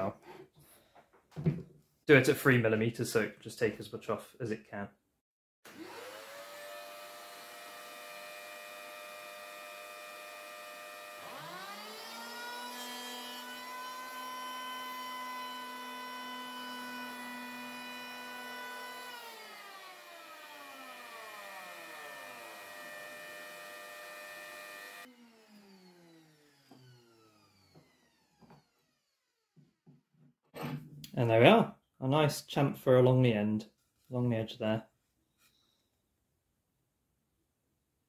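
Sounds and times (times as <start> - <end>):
electric planer motor whine: 5.7 - 29.6.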